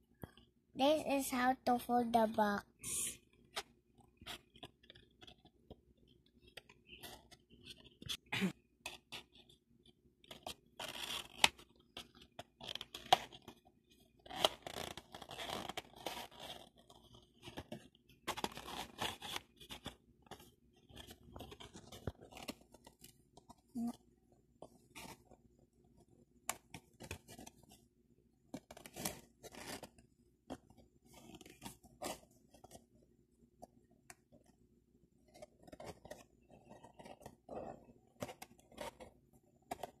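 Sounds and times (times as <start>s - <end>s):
paperboard rustling and creasing: 28.5s - 33.0s.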